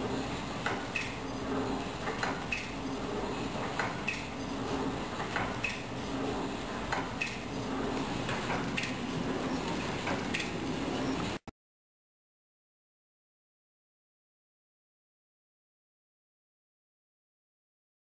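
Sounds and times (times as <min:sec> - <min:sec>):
machine hum: 0:00.0 - 0:11.5.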